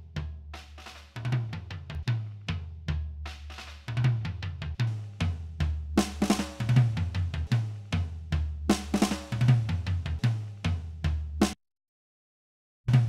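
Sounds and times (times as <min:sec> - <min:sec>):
drum kit playing a groove: 0:03.4 - 0:11.6.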